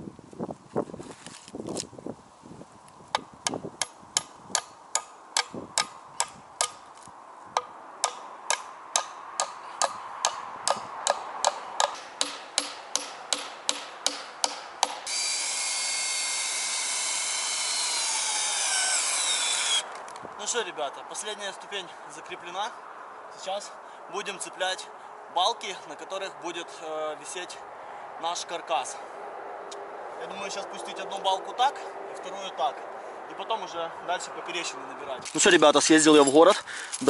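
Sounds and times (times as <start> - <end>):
hammer nailing wooden board: 8.0 - 15.1.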